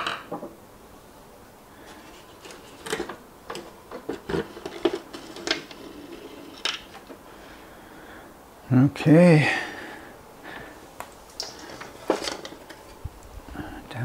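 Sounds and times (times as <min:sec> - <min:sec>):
plastic shell clattering: 0:02.0 - 0:07.2, 0:11.4 - 0:13.0.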